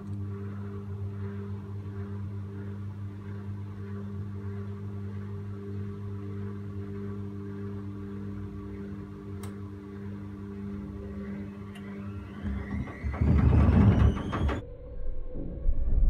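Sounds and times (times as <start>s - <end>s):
washing machine humming: 0.0s - 14.6s
washing machine motor whine: 0.0s - 14.8s
drum rumbling and knocking: 10.8s - 14.6s.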